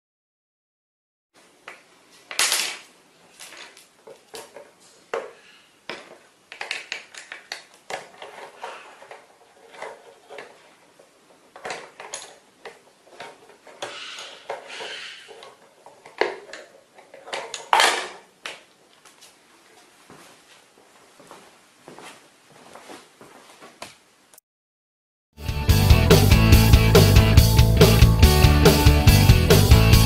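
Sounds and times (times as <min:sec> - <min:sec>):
rough scraping: 0:08.1 - 0:10.9, 0:13.0 - 0:16.0.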